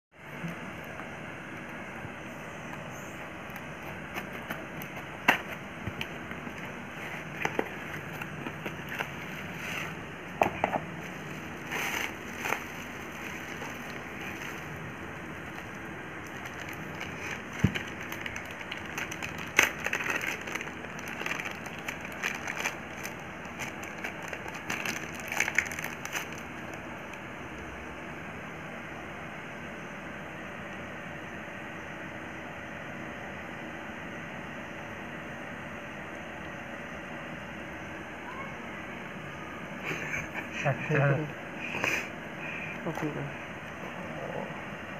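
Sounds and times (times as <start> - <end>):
plastic crinkling and rustling: 2.9 - 10.0, 11.0 - 27.2.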